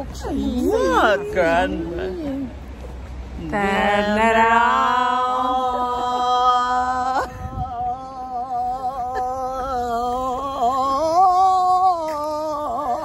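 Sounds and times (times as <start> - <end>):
person singing long notes: 3.4 - 13.0.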